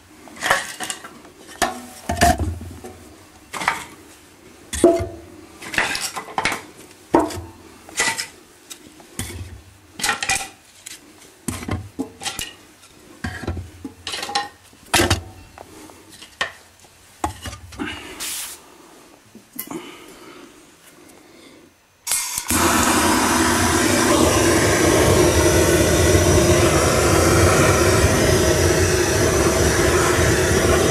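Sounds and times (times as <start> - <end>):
brief hiss: 18.2 - 18.6.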